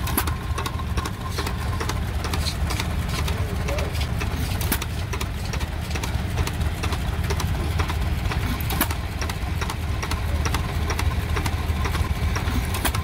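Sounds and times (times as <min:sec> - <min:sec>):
small engine rumbling: 0:00.0 - 0:13.0
sharp repeating clicks: 0:04.2 - 0:13.0.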